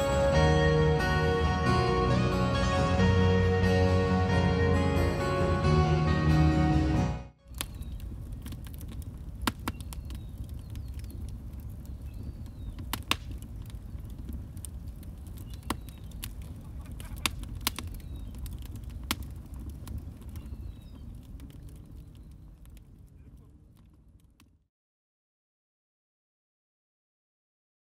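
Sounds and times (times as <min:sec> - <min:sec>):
wood fire crackling: 0:07.4 - 0:24.6
sharp fire pops: 0:07.5 - 0:24.6.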